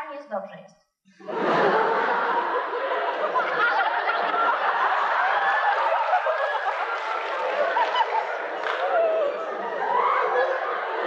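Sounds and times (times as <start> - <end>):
audience laughing: 1.2 - 11.0.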